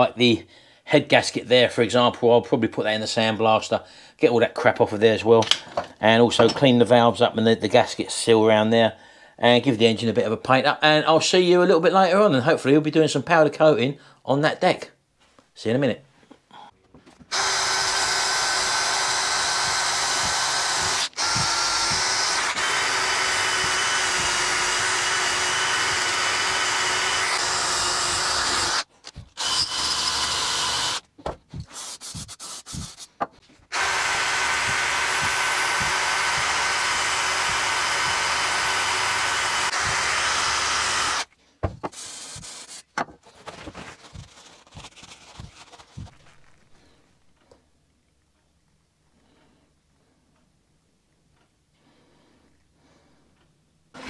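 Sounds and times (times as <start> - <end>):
power drill with wire brush whining: 17.3 - 31.0, 33.7 - 41.3.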